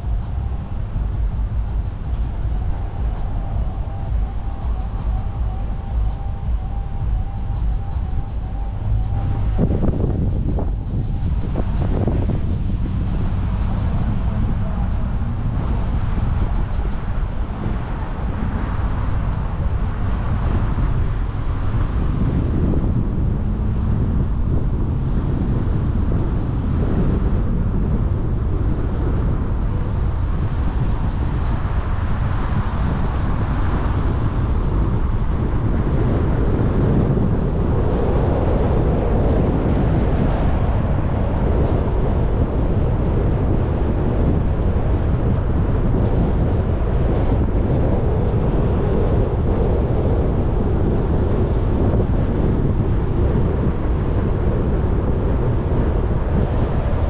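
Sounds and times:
tyre and road rumble: 0.0s - 57.0s
wind: 0.0s - 57.0s.

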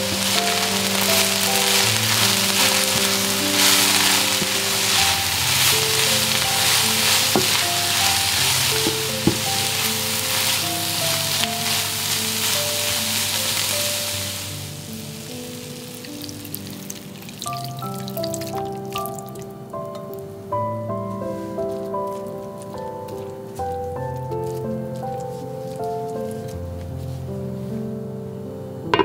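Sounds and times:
vegetables sizzling in frying pan: 0.0s - 20.2s
wooden spatula stirring: 0.0s - 20.3s, 20.9s - 27.3s
soft background music: 0.0s - 29.0s.

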